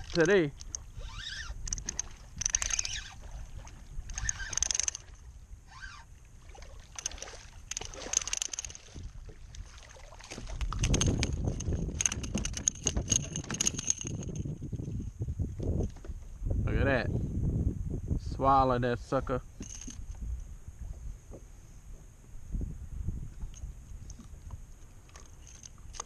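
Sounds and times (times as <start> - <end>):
fish flapping against hull: 6.6 - 16.3.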